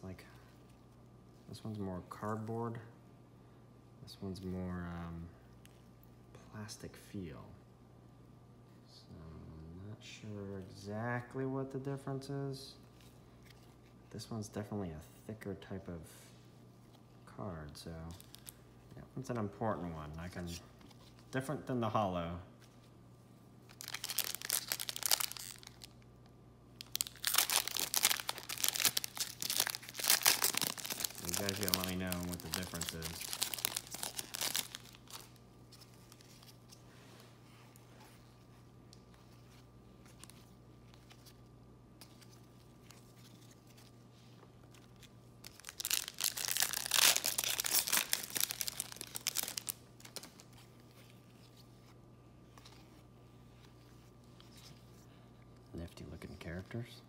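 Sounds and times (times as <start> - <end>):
foil wrapper crinkling and tearing: 23.7 - 26.0, 26.8 - 35.4, 44.8 - 50.5
cards being handled: 26.8 - 36.9.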